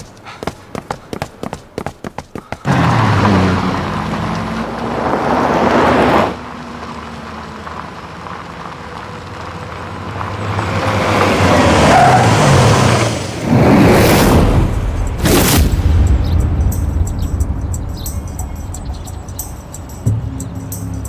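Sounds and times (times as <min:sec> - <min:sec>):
car approaching from distance: 0:02.7 - 0:13.4.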